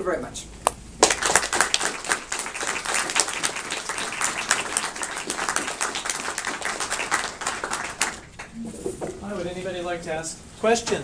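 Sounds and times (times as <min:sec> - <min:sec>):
audience applauding: 0:01.0 - 0:09.7.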